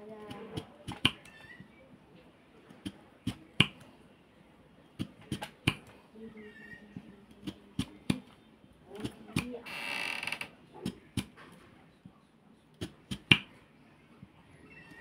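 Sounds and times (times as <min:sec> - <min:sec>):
knife slicing potato: 0:07.4 - 0:08.2.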